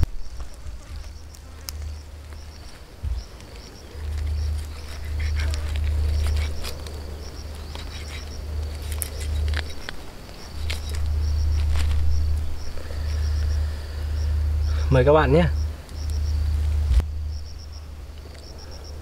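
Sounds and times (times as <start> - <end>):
insect chirping: 0.0 - 19.0
low rumble: 0.0 - 19.0
tearing and chewing food: 0.4 - 13.6.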